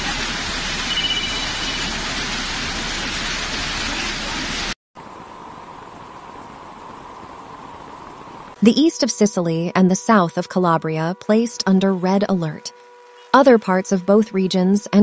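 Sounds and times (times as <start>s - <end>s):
floodwater rushing: 0.0s - 8.6s
heavy rain: 0.0s - 8.6s.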